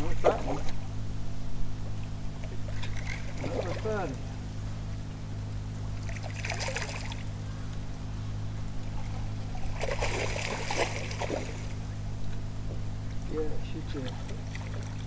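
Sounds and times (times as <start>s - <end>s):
steady low hum: 0.0s - 15.0s
water splashing and trickling: 2.4s - 4.2s, 6.0s - 7.3s, 9.0s - 11.8s, 13.1s - 15.0s.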